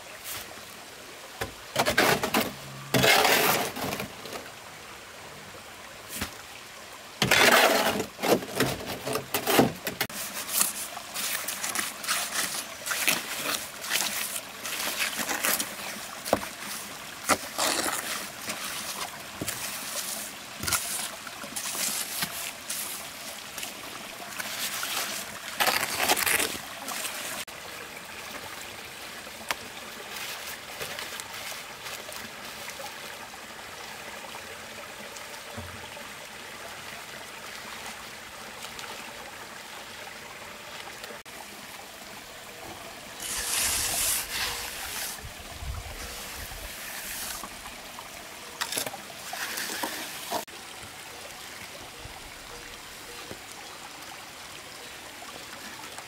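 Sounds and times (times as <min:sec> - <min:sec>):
flowing stream water: 0:00.0 - 0:56.0
shovel scraping wet concrete: 0:01.8 - 0:04.1, 0:07.2 - 0:23.0, 0:24.4 - 0:27.3, 0:43.2 - 0:45.3, 0:46.0 - 0:47.5, 0:48.6 - 0:50.5
trowel smoothing wet concrete: 0:03.0 - 0:03.9, 0:09.4 - 0:23.0, 0:43.2 - 0:45.3, 0:46.0 - 0:47.5, 0:48.6 - 0:50.5.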